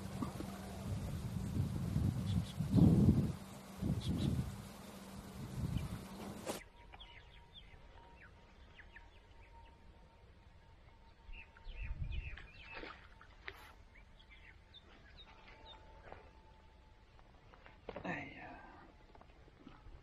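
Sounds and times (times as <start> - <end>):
low rumble: 0.0 - 6.5
small birds chirping: 0.0 - 9.8, 13.9 - 15.8
faint steady tone: 0.0 - 12.1.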